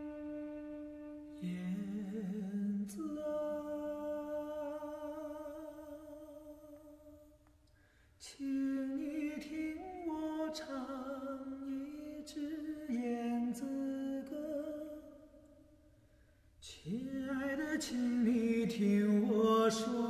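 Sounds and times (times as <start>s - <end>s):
lower wavering voice: 0.0s - 6.9s.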